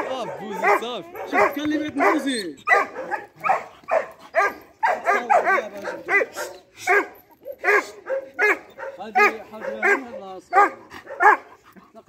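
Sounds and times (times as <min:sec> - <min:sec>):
dog barking: 0:00.0 - 0:11.6.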